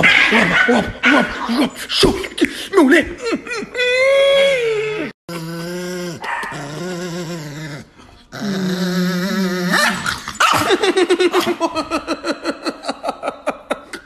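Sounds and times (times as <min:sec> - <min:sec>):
dog growling: 0:05.3 - 0:10.4.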